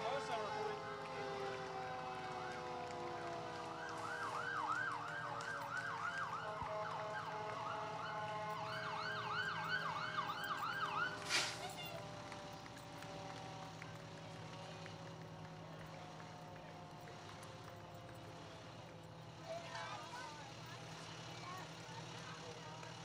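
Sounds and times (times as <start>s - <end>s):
siren falling wail: 0.0s - 11.7s
siren fast yelp: 3.9s - 12.0s.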